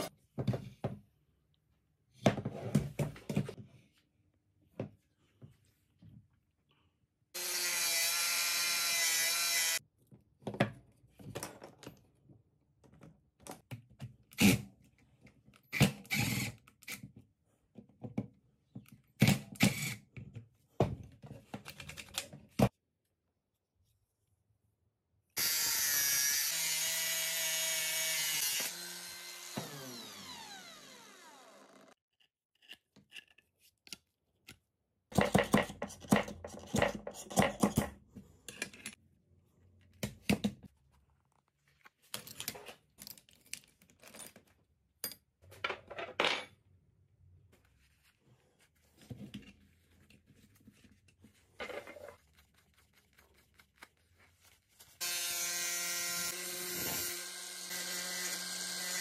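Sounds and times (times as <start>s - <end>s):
power tool winding down: 25.4s - 32.0s.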